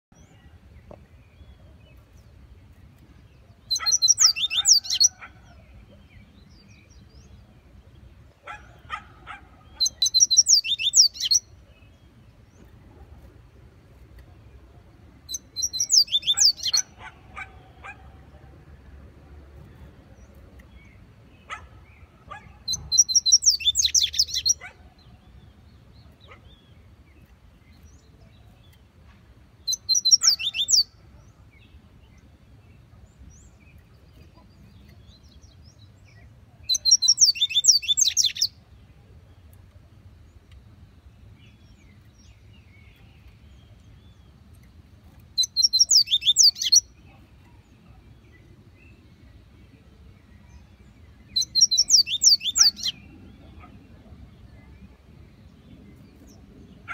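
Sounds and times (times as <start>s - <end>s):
bird singing high-pitched notes: 3.6s - 5.2s, 9.8s - 11.5s, 15.3s - 17.0s, 22.7s - 24.6s, 29.7s - 31.0s, 36.7s - 38.6s, 45.4s - 46.9s, 51.3s - 53.1s.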